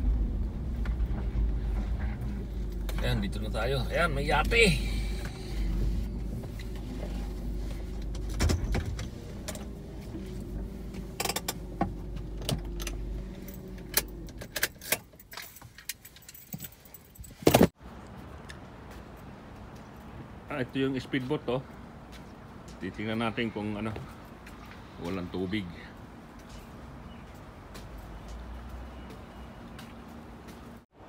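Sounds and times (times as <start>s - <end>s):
car engine running: 0.0s - 14.6s
keys jangling: 13.4s - 17.5s.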